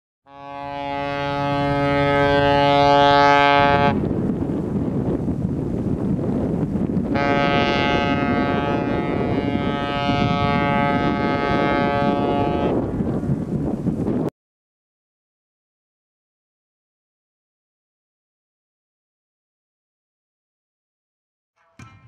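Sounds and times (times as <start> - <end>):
ship whistle blasts: 0.3 - 4.0, 7.1 - 12.8
wind buffeting microphone: 0.8 - 14.3.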